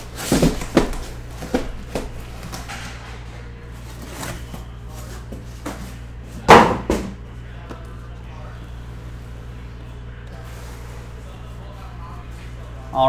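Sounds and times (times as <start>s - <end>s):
boxes thumping on table: 0.1s - 2.7s.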